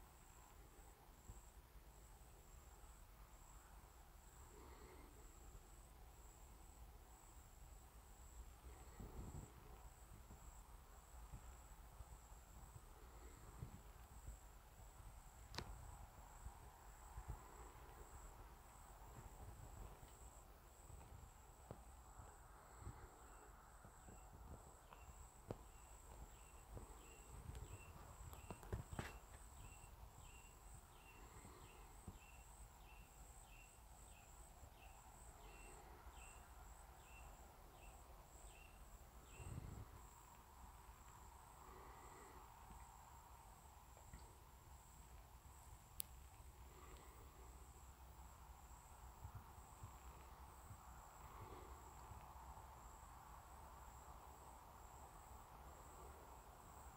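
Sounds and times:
high insect drone: 0:00.0 - 0:56.9
soft rustles and clicks: 0:23.8 - 0:29.6.

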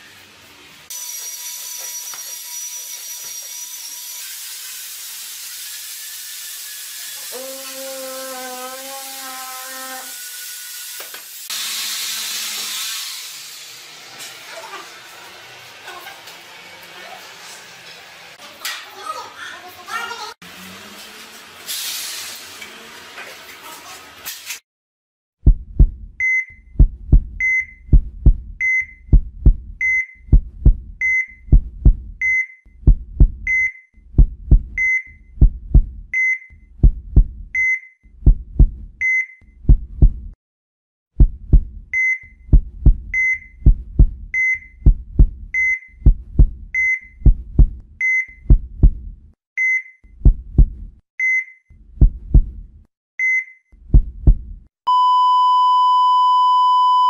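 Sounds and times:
heartbeat double thumps: 0:25.4 - 0:37.6, 0:38.2 - 0:39.0, 0:39.6 - 0:40.4, 0:41.2 - 0:47.8, 0:48.4 - 0:49.3, 0:50.2 - 0:51.0, 0:51.9 - 0:52.8, 0:53.8 - 0:54.7
heart monitor beep: 0:26.2 - 0:32.6, 0:33.3 - 0:33.8, 0:34.6 - 0:36.6, 0:37.6 - 0:37.9, 0:39.0 - 0:39.4, 0:41.9 - 0:43.7, 0:44.3 - 0:47.4, 0:48.0 - 0:48.9, 0:49.6 - 0:50.0, 0:51.2 - 0:51.6, 0:53.2 - 0:53.6, 0:54.9 - 0:57.0.

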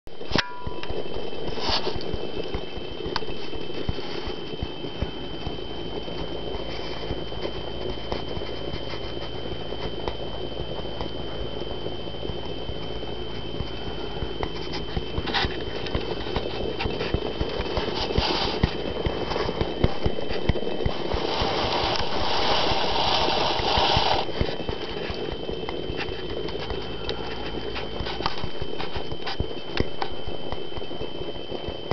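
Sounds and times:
rushing noise: 0:20.9 - 0:25.2.

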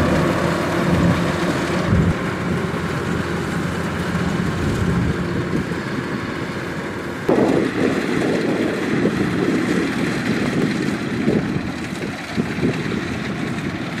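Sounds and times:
combine harvester running: 0:00.0 - 0:14.0.

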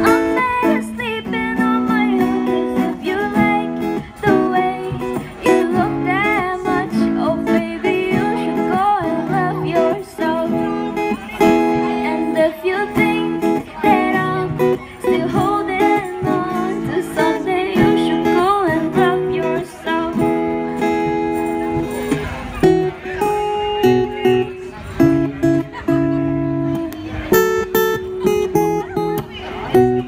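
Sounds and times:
woman singing into microphone: 0:00.0 - 0:20.8
strummed acoustic guitar: 0:00.0 - 0:30.0.

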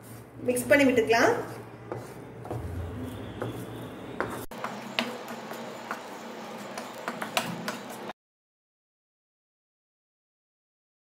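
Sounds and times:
spatula scraping paste in a pan: 0:01.4 - 0:08.1.

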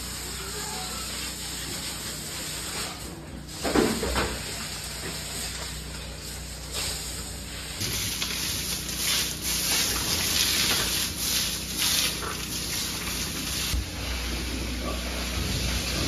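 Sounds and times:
water spray hissing: 0:07.8 - 0:13.8.

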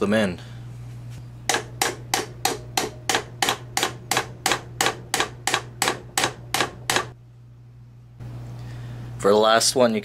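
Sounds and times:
hammer striking metal: 0:01.5 - 0:07.2.

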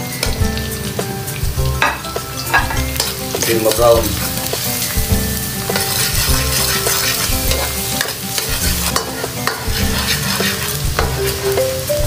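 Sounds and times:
garlic sizzling in oil: 0:00.0 - 0:12.0
metal spatula scraping a pan: 0:01.9 - 0:11.5.

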